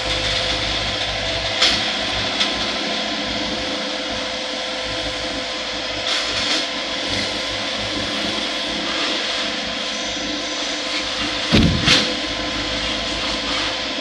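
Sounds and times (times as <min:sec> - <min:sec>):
excavator diesel engine running: 0:00.0 - 0:14.0
short sharp noises: 0:11.5 - 0:12.2.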